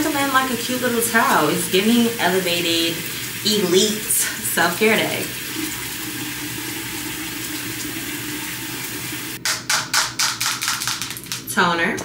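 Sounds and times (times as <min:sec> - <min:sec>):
water running from a tap: 0:00.0 - 0:09.4.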